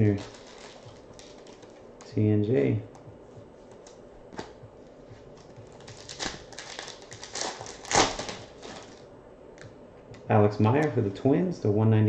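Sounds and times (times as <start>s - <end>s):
pack wrapper rustling: 0.0s - 1.8s, 5.4s - 9.0s.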